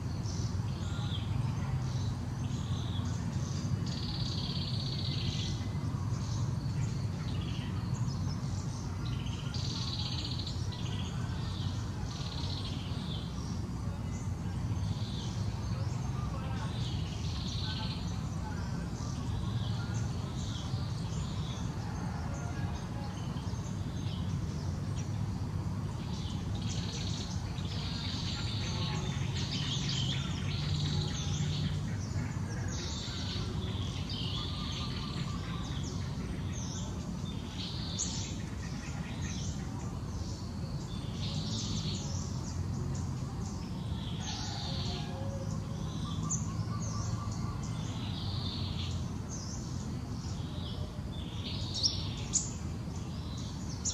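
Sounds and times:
birds chirping: 0.0 - 53.9.

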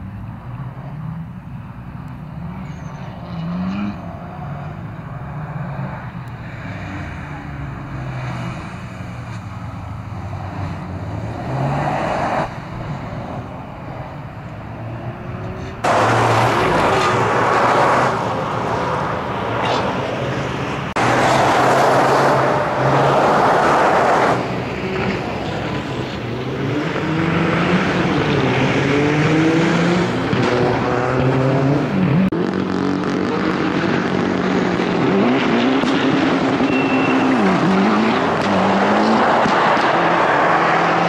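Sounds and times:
car engine revving: 2.1 - 41.0
tyres sliding on gritty asphalt: 15.5 - 26.4.

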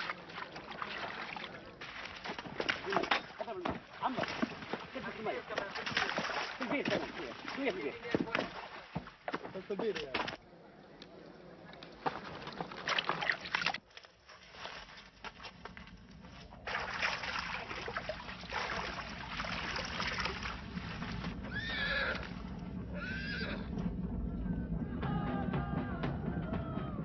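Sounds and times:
steady rushing noise: 19.0 - 25.6
horses whinnying: 21.3 - 23.8.

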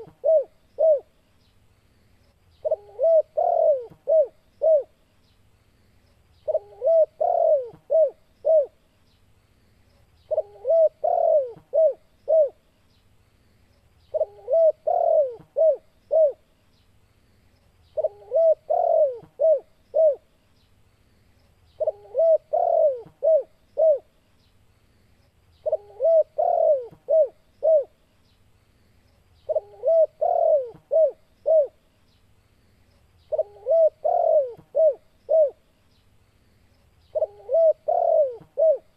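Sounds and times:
dove cooing: 0.0 - 1.2, 2.6 - 5.0, 6.4 - 8.8, 10.3 - 12.6, 14.1 - 16.4, 18.0 - 20.3, 21.8 - 24.1, 25.6 - 28.0, 29.4 - 31.8, 33.3 - 35.6, 37.1 - 38.9.

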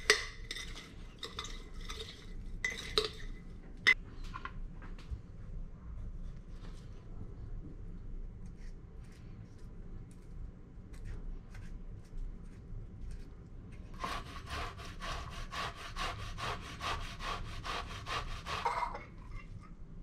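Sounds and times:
beet grating on metal grater: 14.0 - 19.0.

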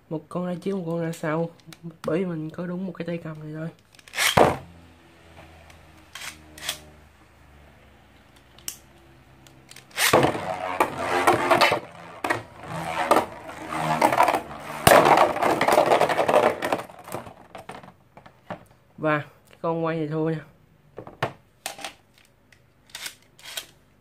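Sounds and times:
spinning tops scraping and clacking: 3.8 - 4.4, 6.0 - 6.9, 9.5 - 17.6, 22.9 - 23.8
spinning top whirring on plastic: 9.5 - 17.5.

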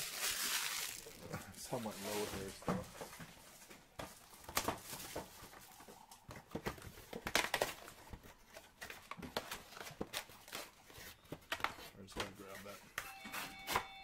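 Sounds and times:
card wrappers crinkling: 0.0 - 2.6.

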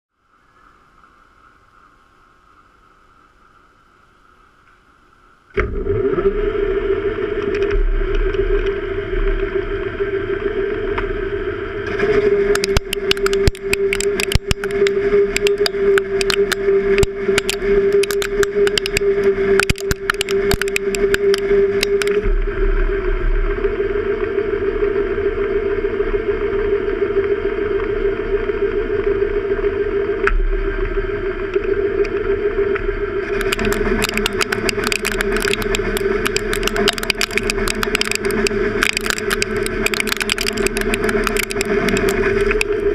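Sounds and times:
crackling ticks of metal chips: 12.5 - 22.2, 33.2 - 42.8.

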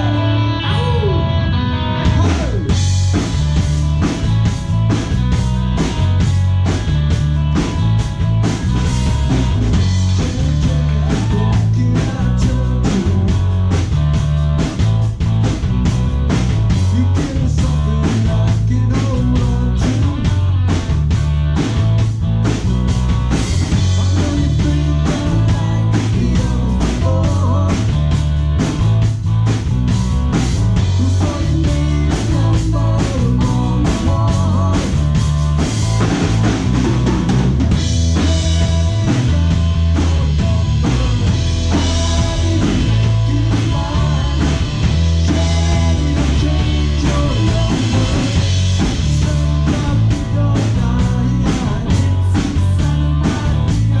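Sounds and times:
electric bass line: 0.0 - 54.0
rock band playing live: 0.0 - 54.0
drum kit beat: 2.0 - 54.0.

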